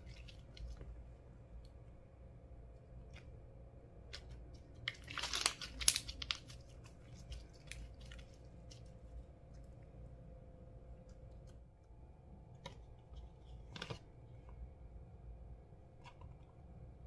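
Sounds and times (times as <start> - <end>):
slime crackling and popping: 4.7 - 8.8.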